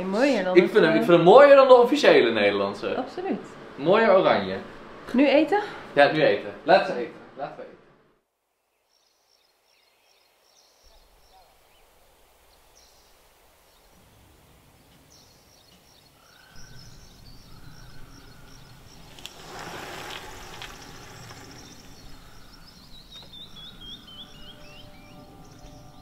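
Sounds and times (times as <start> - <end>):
small birds chirping: 8.6 - 26.0
short rush of noise: 18.9 - 22.2.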